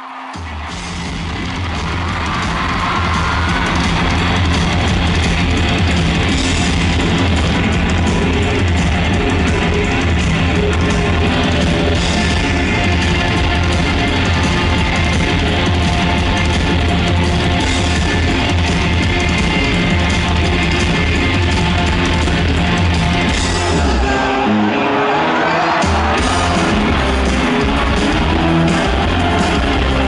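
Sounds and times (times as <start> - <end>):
live rock band playing: 0.2 - 30.0.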